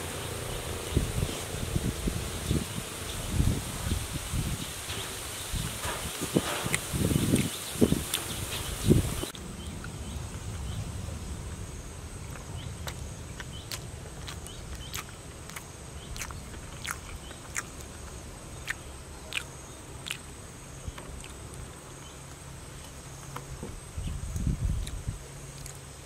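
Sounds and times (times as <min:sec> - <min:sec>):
person chewing food: 0:05.9 - 0:08.4, 0:12.2 - 0:23.5, 0:24.3 - 0:26.0.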